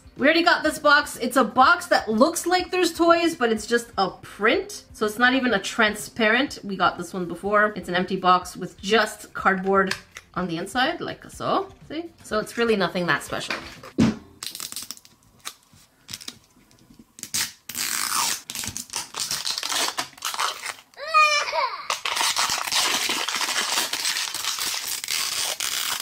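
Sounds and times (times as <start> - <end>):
plastic film crinkling and tearing: 14.4 - 26.0.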